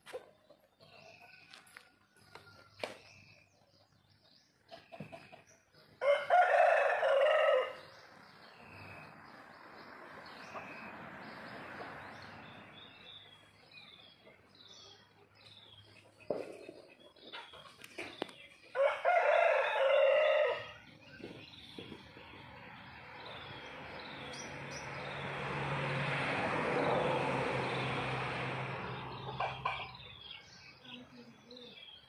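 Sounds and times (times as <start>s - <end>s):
rooster crowing: 6.0s - 7.9s, 18.7s - 20.8s.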